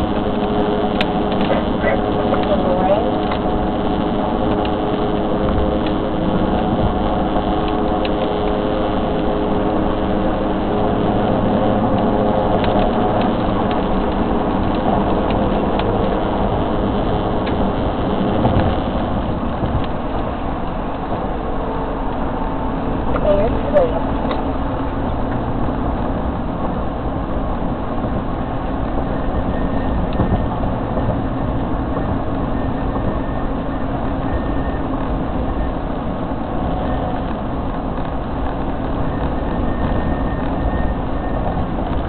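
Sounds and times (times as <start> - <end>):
vehicle road noise: 0.0 - 42.0.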